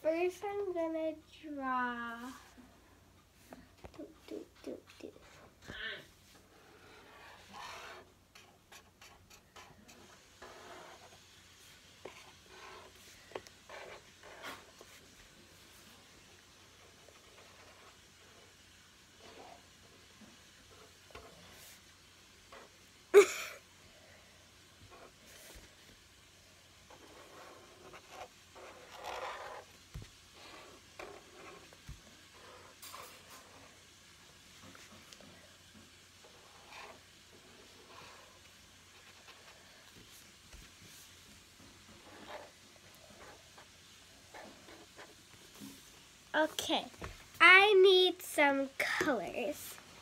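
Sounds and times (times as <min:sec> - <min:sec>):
pen scratching on paper: 0:04.2 - 0:05.6, 0:06.6 - 0:15.1, 0:16.7 - 0:18.4, 0:26.9 - 0:33.7, 0:36.3 - 0:39.6, 0:41.9 - 0:45.8.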